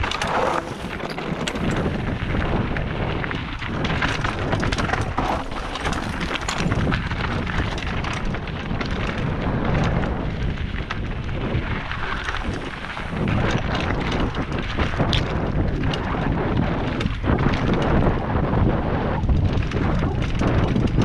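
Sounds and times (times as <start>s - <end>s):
tyres crunching over stones: 0.0s - 14.5s
bike knocking and rattling: 0.0s - 21.0s
wind noise on microphone: 0.0s - 21.0s.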